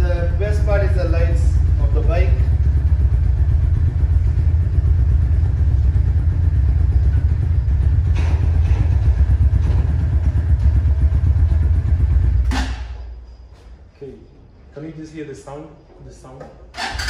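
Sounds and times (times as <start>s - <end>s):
motorcycle engine idling: 0.0s - 13.3s.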